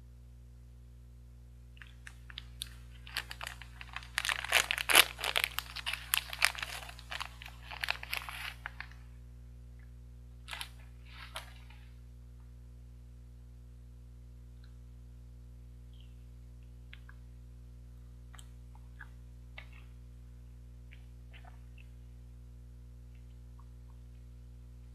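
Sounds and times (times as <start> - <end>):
plastic wrapper crinkling: 1.8 - 9.0, 10.5 - 11.8
wrapper rustling: 1.8 - 9.0, 10.5 - 11.8.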